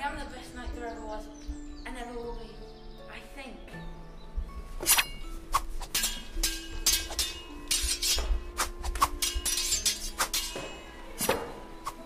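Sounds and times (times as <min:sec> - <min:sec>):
swords and shields clashing: 0:04.8 - 0:12.0.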